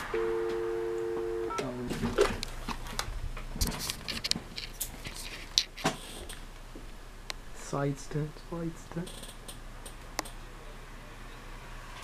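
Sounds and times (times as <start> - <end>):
telephone dial tone: 0.1 - 1.7.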